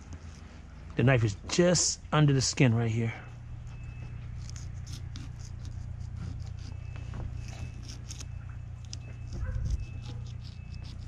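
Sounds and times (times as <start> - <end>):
steady low hum: 0.0 - 11.0
knife scraping fish skin: 4.4 - 11.0.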